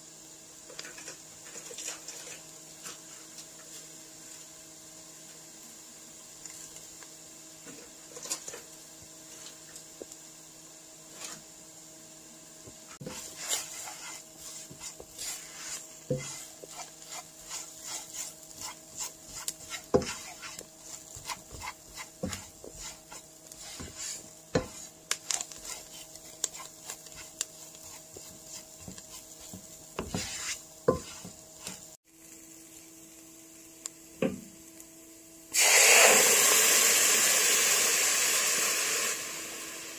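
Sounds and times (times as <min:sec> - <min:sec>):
spatula scraping a frying pan: 0:00.8 - 0:03.4, 0:11.1 - 0:11.5, 0:12.9 - 0:32.0.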